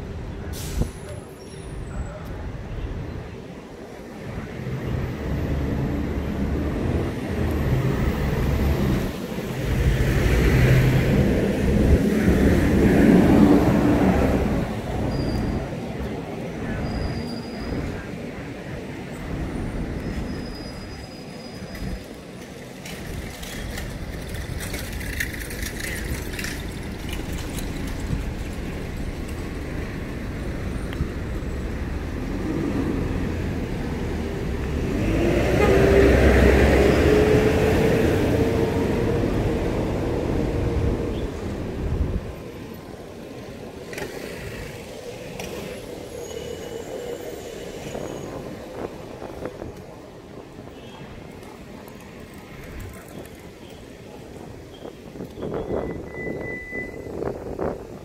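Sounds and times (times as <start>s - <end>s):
street traffic rumble: 0.0s - 58.0s.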